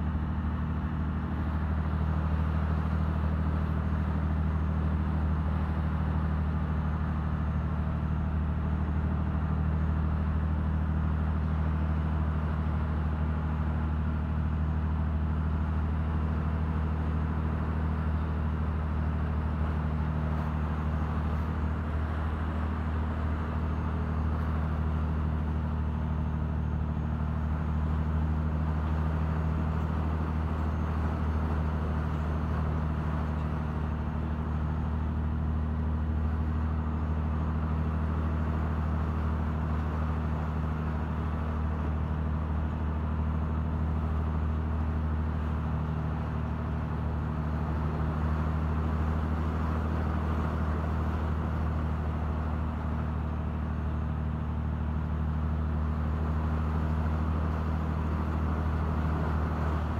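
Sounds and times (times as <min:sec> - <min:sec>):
diesel engine droning: 0:00.0 - 0:59.9
water splashing along hull: 0:26.5 - 0:59.9.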